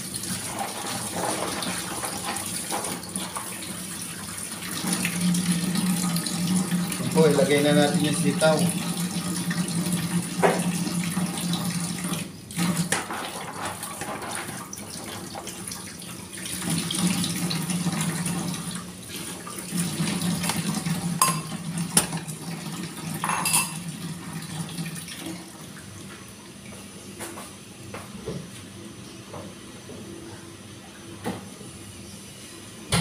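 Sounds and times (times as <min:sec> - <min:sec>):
tap water running into sink: 0:00.0 - 0:25.6
colander and dishes clattering: 0:21.2 - 0:22.2, 0:23.2 - 0:23.8.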